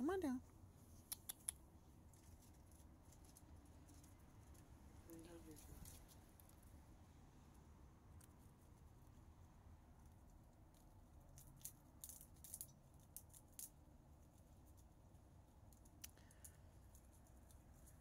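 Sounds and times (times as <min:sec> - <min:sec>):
squirrel gnawing peanut shell: 0:00.5 - 0:18.0.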